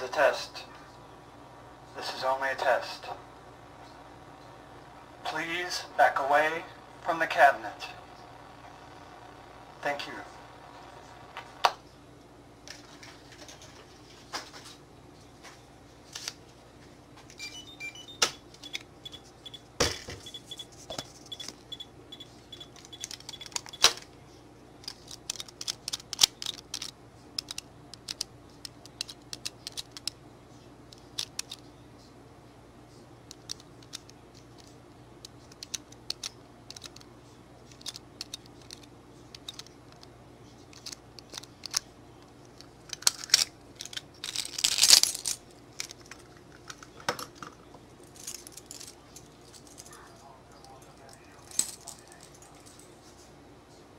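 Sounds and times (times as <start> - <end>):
short electronic beeps: 17.4 - 19.6, 20.2 - 20.7
steady high beep: 17.4 - 19.6, 20.2 - 20.7, 21.3 - 23.8
keys and padlocks clattering: 48.0 - 50.0.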